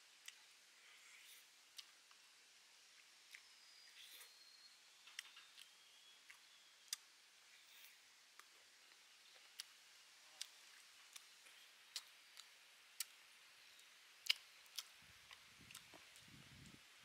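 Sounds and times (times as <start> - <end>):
faint hiss: 0.0 - 5.0.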